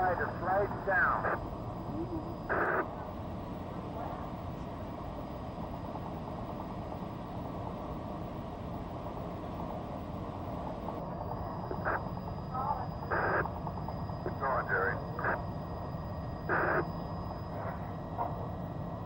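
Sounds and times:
radio static hiss: 0.0 - 4.1, 10.7 - 18.3
short burst of radio sound: 12.8 - 13.4, 14.2 - 15.4, 16.4 - 17.0.

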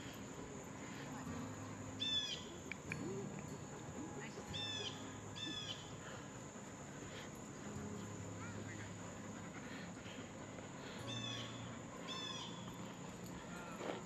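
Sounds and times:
low steady background hum: 0.0 - 14.0
bird calling: 2.0 - 3.3, 4.1 - 6.3, 8.4 - 14.0
bird chirps: 2.0 - 6.2, 10.9 - 13.7.

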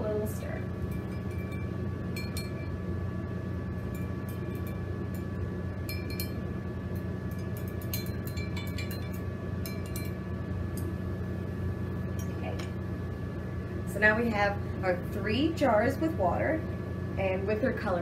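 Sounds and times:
steady low hum: 0.0 - 18.0
stir stick clinking on glass jars: 0.9 - 2.7, 3.9 - 6.4, 7.0 - 10.2.

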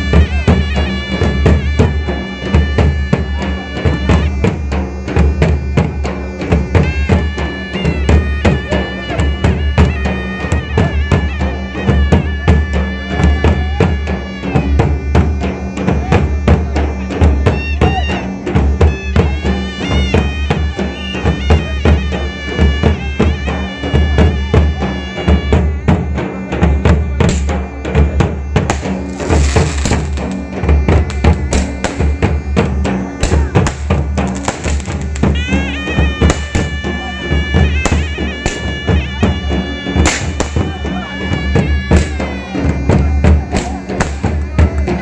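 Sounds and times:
fast dense drumming: 0.0 - 45.0
high held melody: 0.0 - 45.0.

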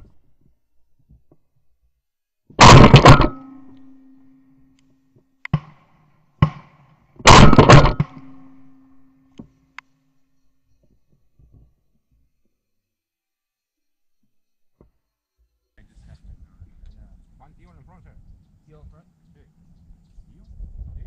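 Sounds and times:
shotgun shots: 2.6 - 4.2, 5.5 - 8.9
ringing hum: 2.6 - 10.9.

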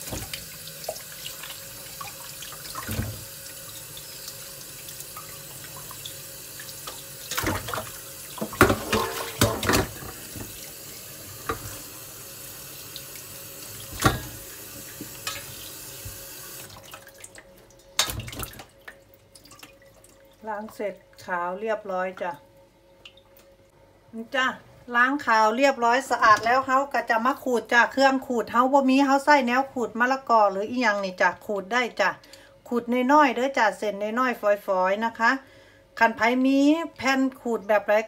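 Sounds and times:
water splashing: 0.0 - 11.6, 16.6 - 20.8
tap water running into bowl: 0.0 - 20.2.

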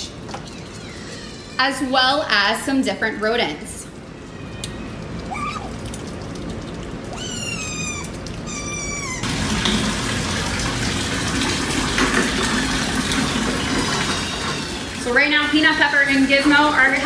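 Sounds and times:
otters squeaking: 0.0 - 2.1, 7.1 - 9.3
water running into plastic tub: 0.0 - 2.7, 3.6 - 17.0.

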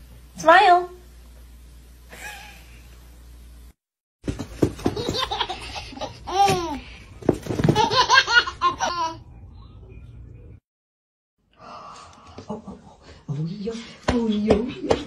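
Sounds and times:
baby laughing: 4.8 - 6.9, 7.6 - 9.2.

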